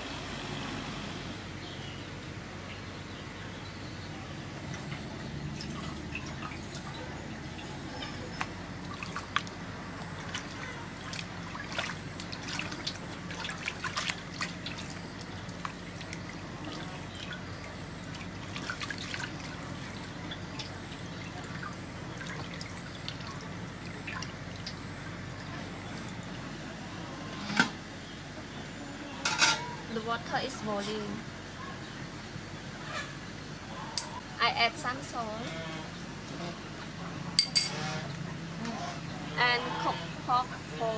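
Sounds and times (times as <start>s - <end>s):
water running off into basin: 4.6s - 26.5s
water dripping and splashing: 4.7s - 26.4s
meat rubbed by hand in water: 10.2s - 23.5s.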